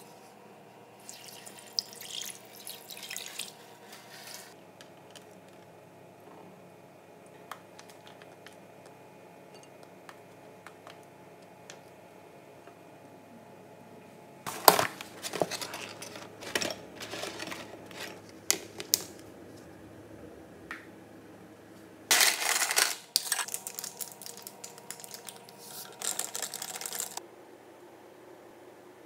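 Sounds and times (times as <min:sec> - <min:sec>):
plastic crackling and rustling: 0:14.5 - 0:19.2, 0:22.1 - 0:27.2.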